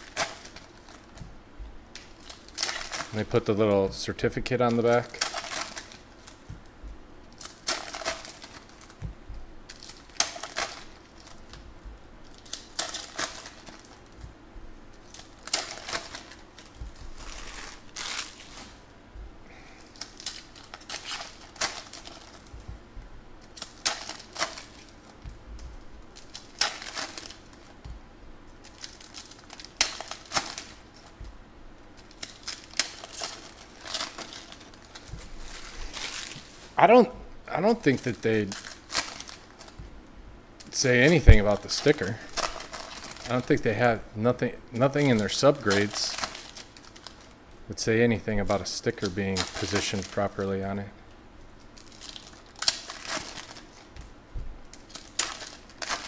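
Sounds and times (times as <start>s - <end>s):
foil wrappers crinkling and tearing: 0.0s - 1.3s, 1.9s - 14.3s, 14.9s - 18.9s, 19.5s - 22.7s, 23.4s - 27.9s, 28.5s - 37.0s, 37.6s - 39.8s, 40.6s - 56.0s.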